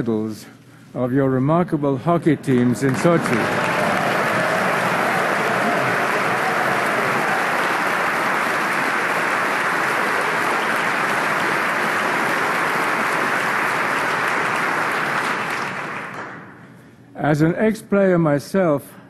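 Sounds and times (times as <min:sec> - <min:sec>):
audience applauding: 0:02.3 - 0:16.6.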